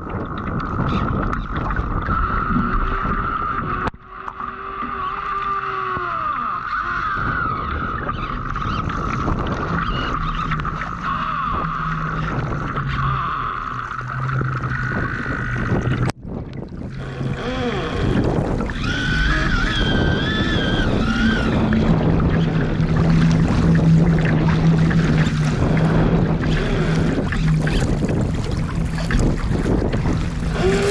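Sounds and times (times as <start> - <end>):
wind buffeting microphone: 0.0 - 4.1, 4.8 - 30.9
water splashing against hull: 0.0 - 30.9
wavering high whining tones: 18.6 - 29.2.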